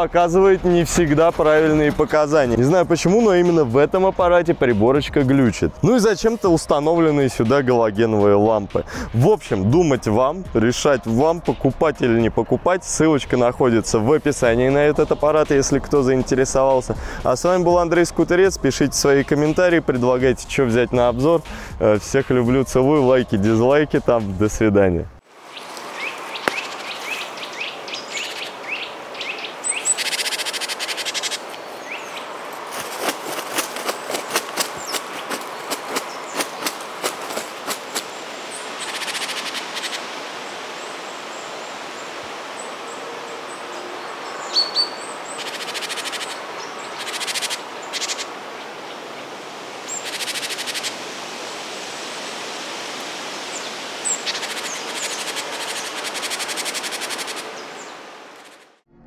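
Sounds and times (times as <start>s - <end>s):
steady background hiss: 10.5s - 58.8s
birds chirping: 25.4s - 51.0s, 52.9s - 58.8s
rapid clicks: 54.3s - 57.4s.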